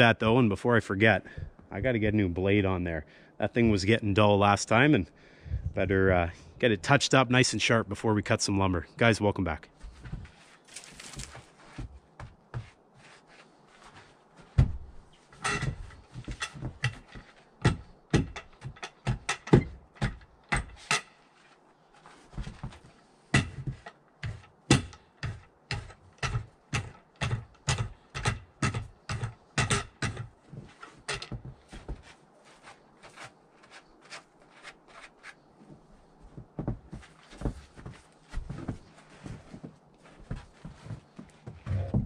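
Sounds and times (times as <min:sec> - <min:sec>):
sharp metallic clicks and knocks: 0:15.4 - 0:21.2, 0:23.4 - 0:31.5.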